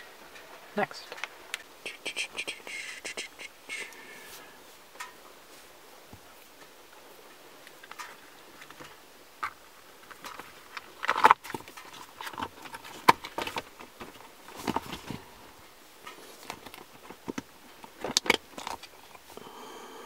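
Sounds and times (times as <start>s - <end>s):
rubbery rustling: 7.8s - 19.3s.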